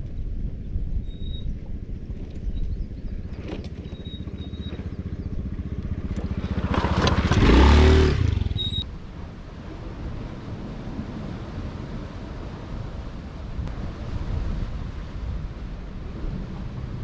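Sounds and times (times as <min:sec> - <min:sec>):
small motorbike engine running: 0:03.3 - 0:08.8.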